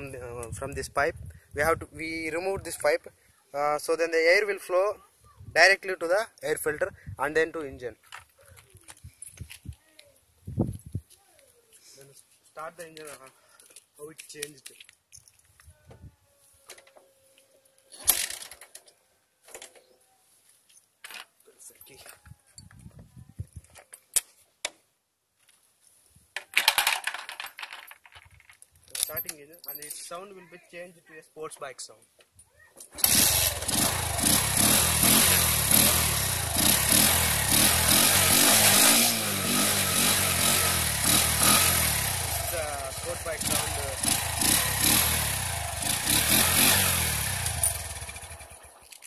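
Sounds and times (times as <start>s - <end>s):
motorcycle engine revving: 33.0s - 48.8s.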